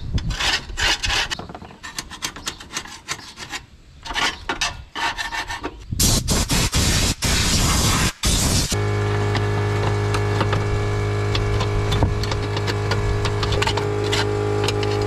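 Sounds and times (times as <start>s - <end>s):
hand scraping metal brackets: 0.1s - 5.8s, 9.3s - 15.0s.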